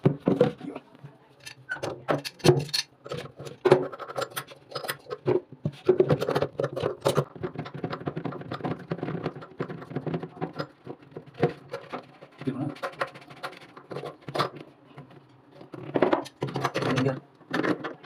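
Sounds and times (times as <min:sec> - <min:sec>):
metal clicks and scrapes: 0:01.4 - 0:18.0.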